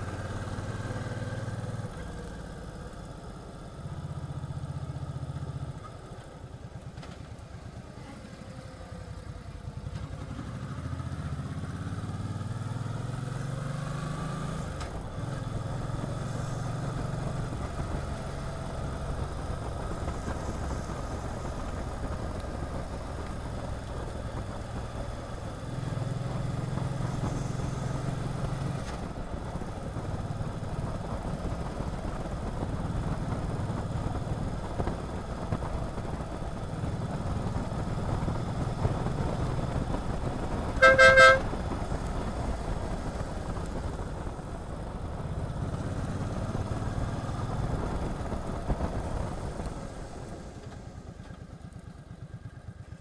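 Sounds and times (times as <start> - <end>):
motorcycle engine running: 14.2 - 53.0.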